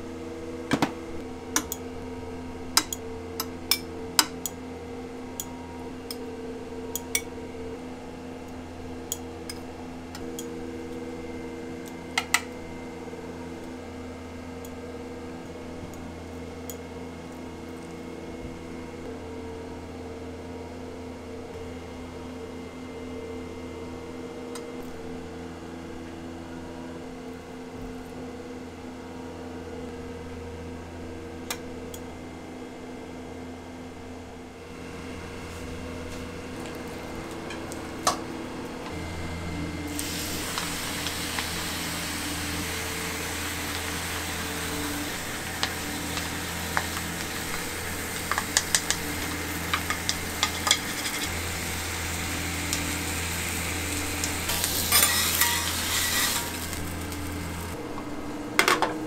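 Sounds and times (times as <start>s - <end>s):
machine hum: 0.0s - 26.9s, 28.4s - 59.0s
hiss: 39.9s - 57.7s.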